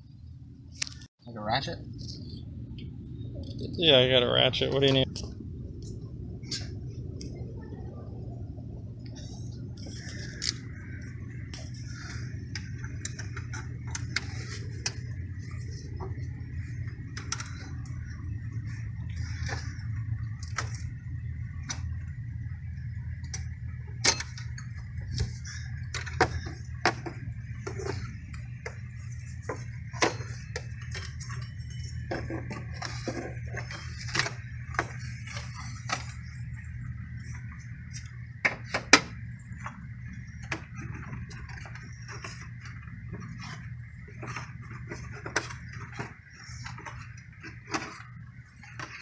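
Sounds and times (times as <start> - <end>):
steady low hum: 0.0 - 49.0.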